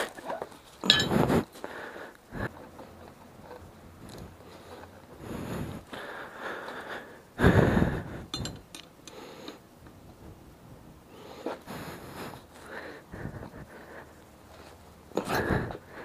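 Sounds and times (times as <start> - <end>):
small metallic clicks: 8.3 - 10.0.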